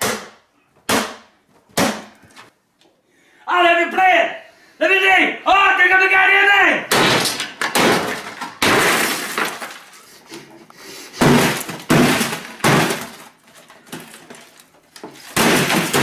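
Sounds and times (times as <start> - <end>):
glass shattering: 7.0 - 10.0, 11.2 - 14.6, 15.3 - 16.0.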